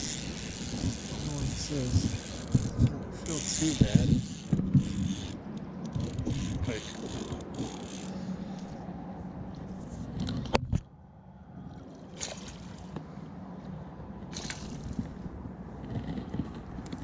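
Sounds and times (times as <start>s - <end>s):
water sloshing and splashing: 11.6s - 17.0s.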